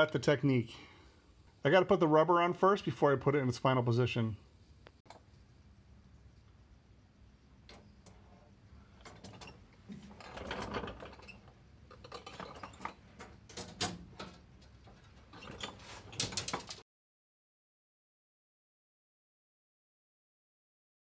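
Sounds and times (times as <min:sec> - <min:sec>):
metal tubes clinking: 0:09.1 - 0:13.8.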